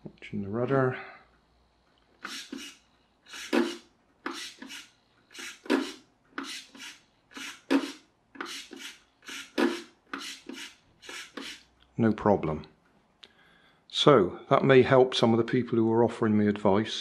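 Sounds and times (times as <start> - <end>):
servo whirring in short bursts: 2.2 - 11.7.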